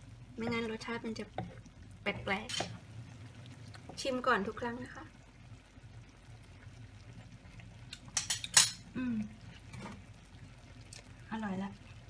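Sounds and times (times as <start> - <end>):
metal spoon clinking on cookware: 8.2 - 8.8.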